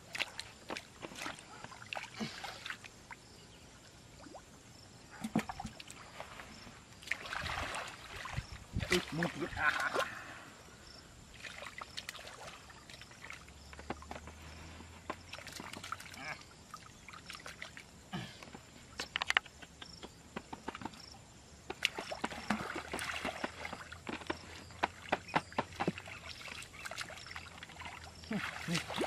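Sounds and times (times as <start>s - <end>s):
hands sloshing in muddy water: 0.0s - 2.9s, 5.1s - 10.4s, 11.3s - 13.5s, 21.8s - 29.0s
wet mud squelches: 0.0s - 3.0s, 21.7s - 29.0s.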